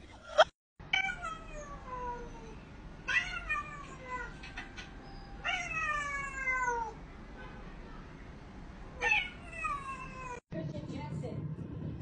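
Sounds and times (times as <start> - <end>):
cat meowing: 0.9 - 4.4, 5.4 - 7.0, 9.0 - 10.4.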